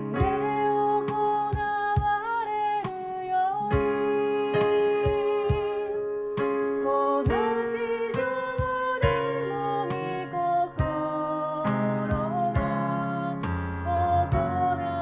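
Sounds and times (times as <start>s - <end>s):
keyboard chords: 0.0s - 15.0s
vocal group singing a hymn: 6.8s - 15.0s.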